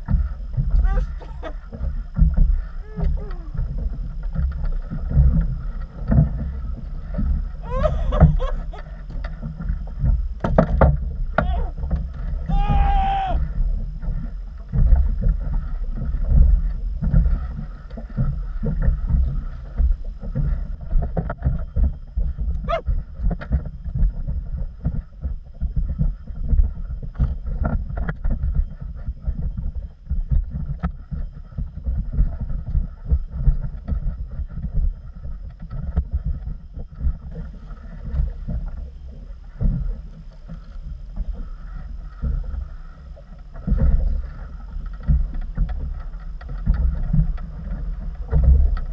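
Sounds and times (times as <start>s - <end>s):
person speaking: 0.7s - 1.6s, 2.8s - 3.6s, 11.4s - 11.7s, 12.5s - 13.4s.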